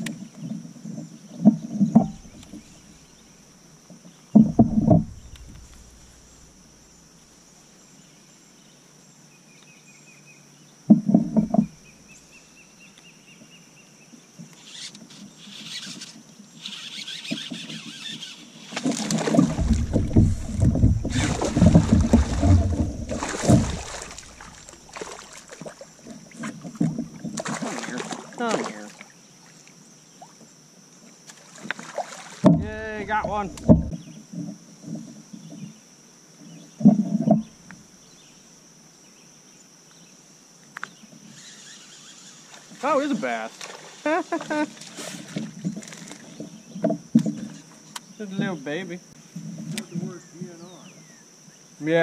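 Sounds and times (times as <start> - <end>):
knocks against kayak hull: 4.3 - 6.2, 18.8 - 25.2, 32.4 - 34.1
water sloshing and splashing: 4.4 - 6.6, 18.7 - 30.4, 31.3 - 34.0, 42.5 - 47.8.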